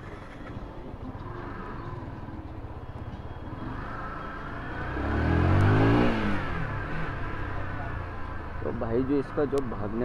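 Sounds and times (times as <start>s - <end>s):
motorcycle engine revving: 3.4s - 8.0s.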